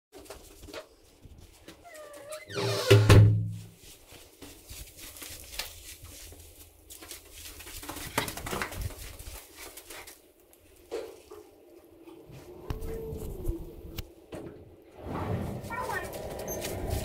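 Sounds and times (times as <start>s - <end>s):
dog paws on plastic sheeting: 0.1s - 2.6s, 3.4s - 13.4s, 15.6s - 17.0s.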